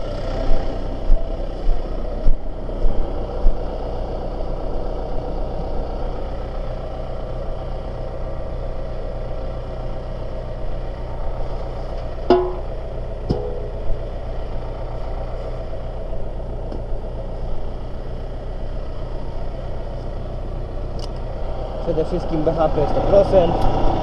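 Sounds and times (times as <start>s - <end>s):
tractor engine running: 0.0s - 24.0s
sharp knocks: 12.3s - 12.7s, 13.3s - 13.7s.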